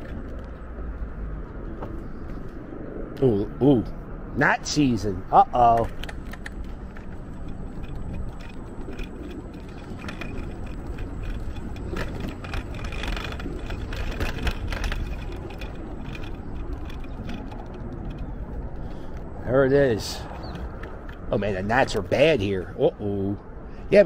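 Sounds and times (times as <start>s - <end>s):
footsteps on wooden boardwalk: 0.0s - 2.6s, 5.9s - 19.5s, 20.2s - 22.1s
low outdoor rumble: 0.0s - 24.0s.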